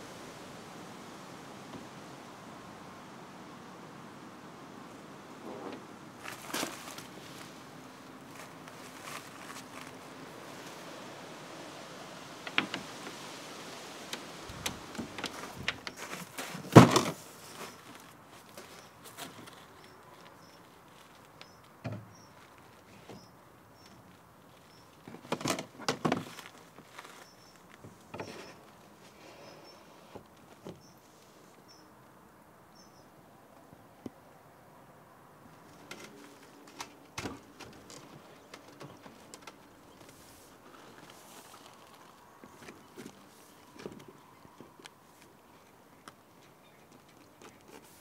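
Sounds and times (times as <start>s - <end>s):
faint bird chirps: 29.2s - 30.0s, 32.7s - 33.2s.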